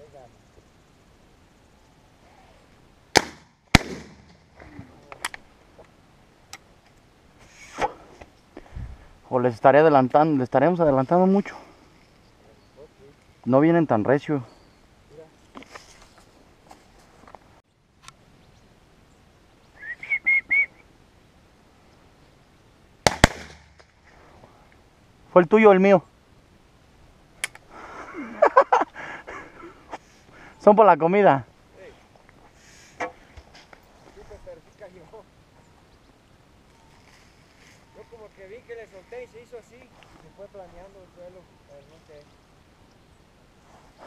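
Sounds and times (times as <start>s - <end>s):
shotgun shots: 3.1s - 4.4s, 23.0s - 23.9s
high whistled notes: 19.8s - 20.8s.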